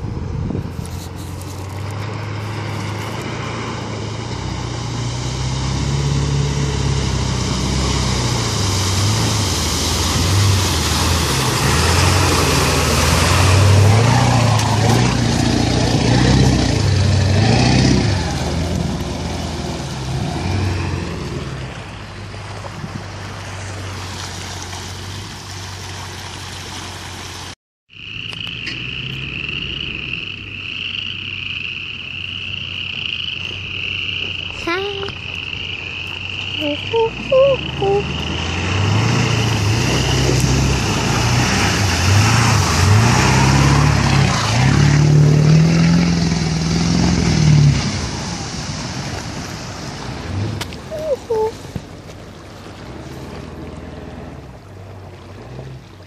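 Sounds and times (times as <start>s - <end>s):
diesel truck engine labouring: 0.0s - 56.0s
water splashing: 0.6s - 27.6s, 28.4s - 56.0s
frogs croaking chorus: 27.9s - 38.8s.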